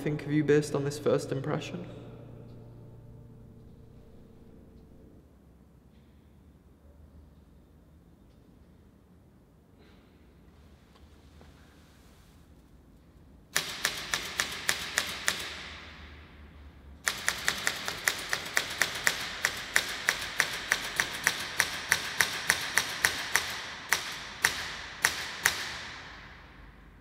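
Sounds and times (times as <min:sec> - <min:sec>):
rapid sharp clicks: 0:13.6 - 0:15.7, 0:17.0 - 0:26.2.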